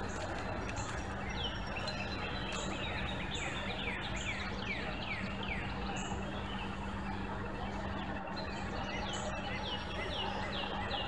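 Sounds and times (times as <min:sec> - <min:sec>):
steady hiss with low hum: 0:00.0 - 0:11.0.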